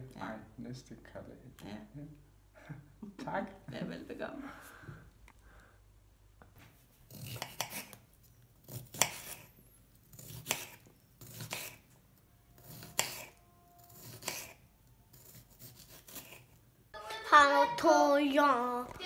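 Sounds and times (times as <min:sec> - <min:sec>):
knife slicing cucumber: 0:07.0 - 0:11.9, 0:12.6 - 0:16.6.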